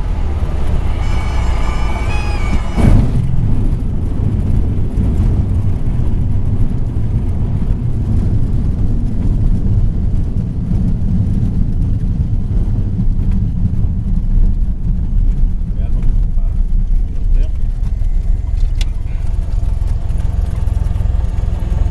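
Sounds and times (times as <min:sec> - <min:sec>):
airplane engine idling in cabin: 0:00.0 - 0:09.2, 0:15.8 - 0:21.9.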